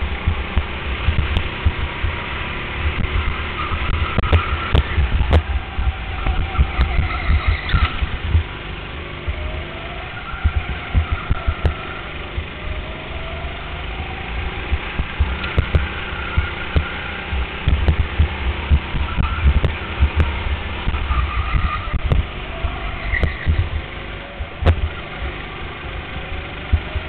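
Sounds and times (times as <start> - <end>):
go-kart engine accelerating: 0.0 - 27.0
heavy low thumping: 14.6 - 21.1, 21.9 - 25.0.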